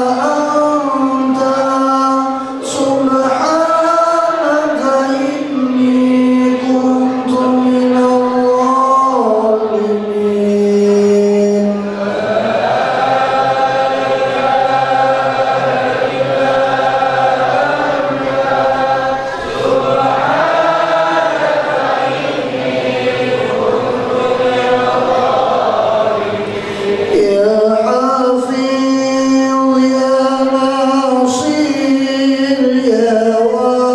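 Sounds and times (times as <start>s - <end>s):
men chanting over microphone: 0.0s - 33.9s.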